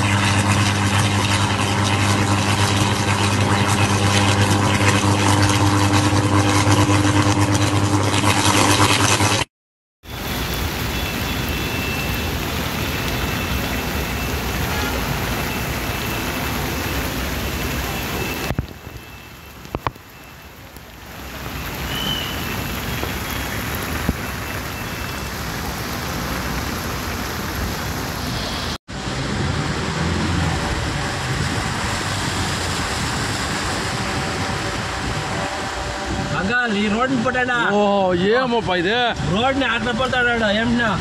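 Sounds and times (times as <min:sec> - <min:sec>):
heavy rain and rushing floodwater: 0:00.0 - 0:41.0
car driving through water: 0:10.1 - 0:37.3.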